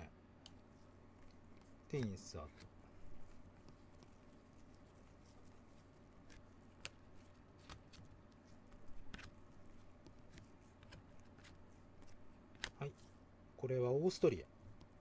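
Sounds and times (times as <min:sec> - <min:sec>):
low steady hum: 0:00.0 - 0:15.0
trading cards sliding: 0:00.4 - 0:13.2.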